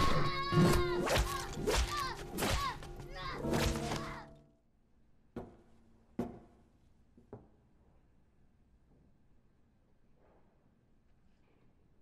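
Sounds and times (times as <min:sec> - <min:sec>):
film music: 0:00.0 - 0:04.7.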